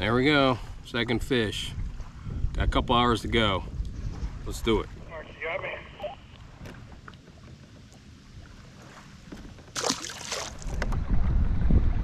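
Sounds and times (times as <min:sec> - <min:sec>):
kayak handling noise: 0:06.2 - 0:11.0.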